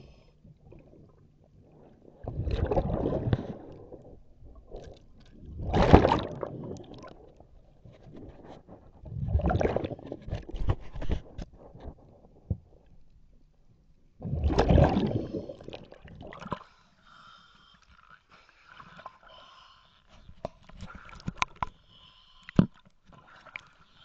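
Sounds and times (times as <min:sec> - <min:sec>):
water sloshing against hull: 0:00.0 - 0:24.0
clicks and gurgles underwater: 0:00.3 - 0:24.0
underwater regulator bubbles: 0:00.7 - 0:07.3, 0:09.1 - 0:10.1, 0:14.2 - 0:16.6.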